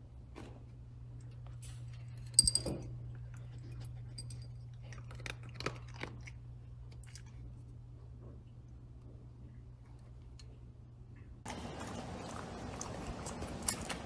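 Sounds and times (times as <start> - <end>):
dog crunching kibble: 4.7 - 7.4, 11.5 - 14.0.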